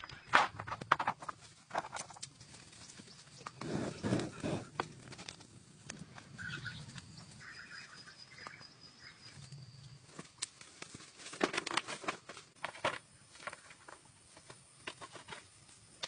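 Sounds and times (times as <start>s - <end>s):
bamboo poles knocking and rattling: 0.0s - 2.7s, 10.1s - 16.0s
poles dragged over dry ground: 0.0s - 7.6s.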